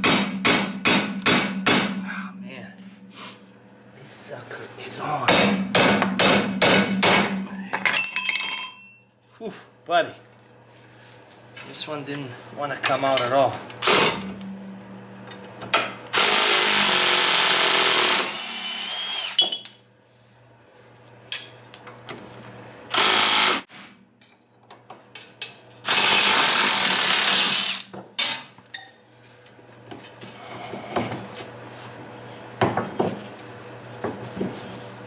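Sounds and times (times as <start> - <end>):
impact wrench hammering: 0.0 - 2.0, 5.3 - 8.9
metal clinks and knocks: 7.8 - 9.4, 19.4 - 20.0.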